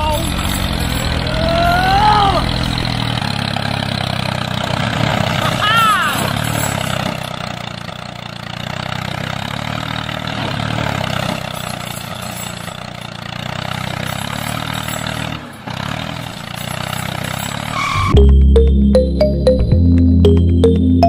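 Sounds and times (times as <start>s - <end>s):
engine droning: 0.0s - 21.0s
music: 18.0s - 21.0s.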